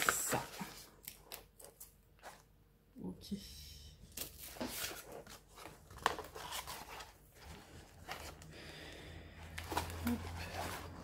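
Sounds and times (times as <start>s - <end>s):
canvas and paper rustling: 4.2s - 8.6s, 9.5s - 11.0s.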